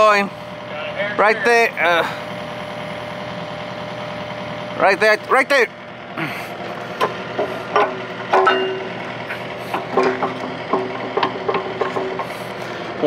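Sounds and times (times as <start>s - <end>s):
excavator engine idling: 0.0s - 13.0s
metal clinks and knocks: 7.0s - 9.0s, 9.8s - 12.3s.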